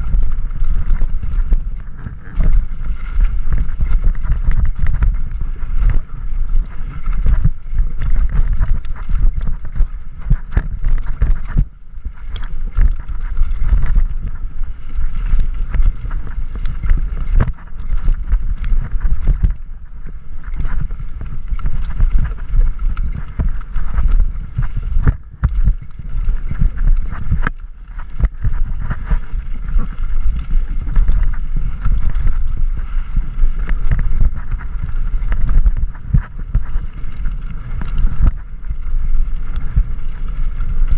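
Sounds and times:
bike knocks and rattles: 0.0 - 19.6, 20.5 - 32.6
wind buffeting microphone: 0.0 - 40.9.

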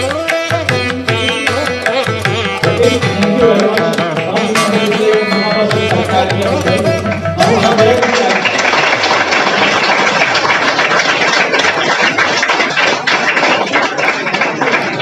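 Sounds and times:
children applauding: 7.4 - 15.0.

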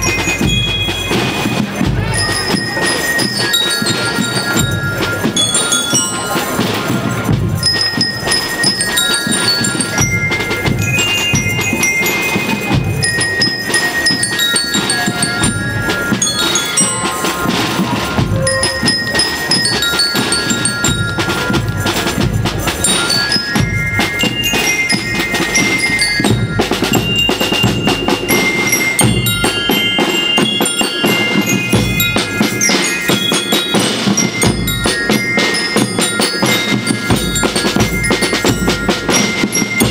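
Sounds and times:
bell lyres melody: 0.0 - 39.9
snare and bass drums beat: 0.0 - 39.9.

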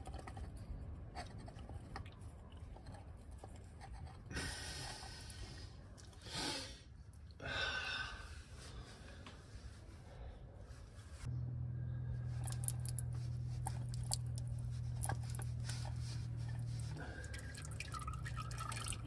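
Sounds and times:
man breathing hard: 4.3 - 9.4.

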